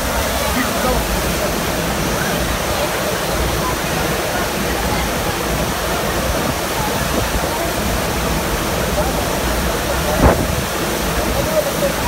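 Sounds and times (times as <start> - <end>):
rushing sheet of water: 0.0 - 12.0
short thump: 10.2 - 10.5.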